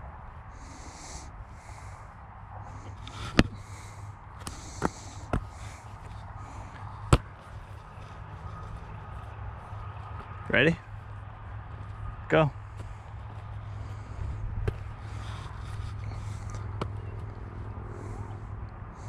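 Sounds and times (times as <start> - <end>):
wind rumbling on microphone: 1.8 - 19.0
football slapping into hands: 3.1 - 3.6, 7.0 - 7.5, 14.6 - 14.9, 16.6 - 17.2.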